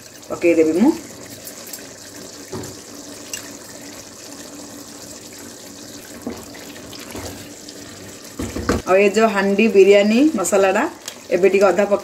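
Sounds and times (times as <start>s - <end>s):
food sizzling in a pot: 0.0s - 12.0s.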